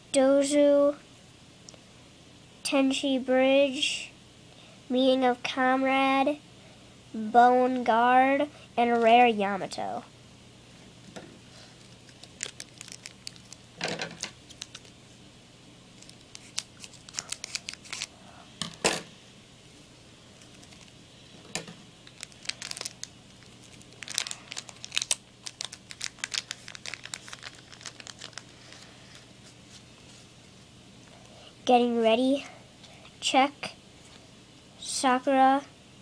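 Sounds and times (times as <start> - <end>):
foil pack tearing and crinkling: 11.8 - 15.0, 16.0 - 18.1, 20.4 - 21.0, 22.0 - 29.2.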